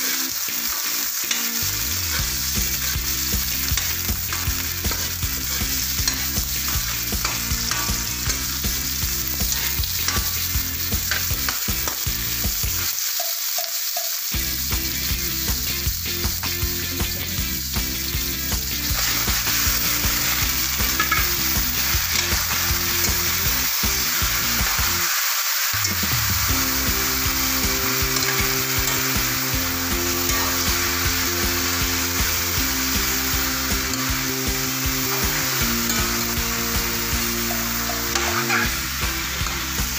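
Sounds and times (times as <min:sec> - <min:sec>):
spatula stirring in wok: 0:00.0 - 0:14.4, 0:25.8 - 0:39.9
food sizzling in hot oil: 0:00.0 - 0:39.9.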